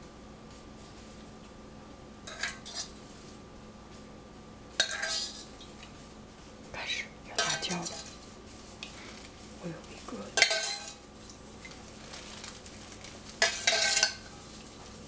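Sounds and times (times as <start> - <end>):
metal spoon scraping saucepan: 2.3 - 3.0, 4.8 - 5.5, 7.4 - 8.2, 10.4 - 11.0, 13.4 - 14.3.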